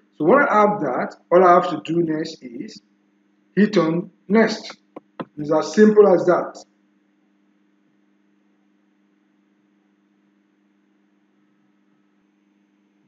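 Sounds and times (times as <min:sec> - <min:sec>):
faint electrical hum: 0:00.0 - 0:13.0
background hiss: 0:00.5 - 0:02.8, 0:03.6 - 0:06.6.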